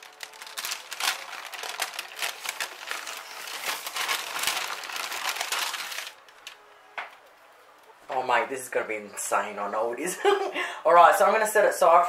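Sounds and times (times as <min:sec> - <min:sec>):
baking paper crinkling: 0:00.0 - 0:06.6.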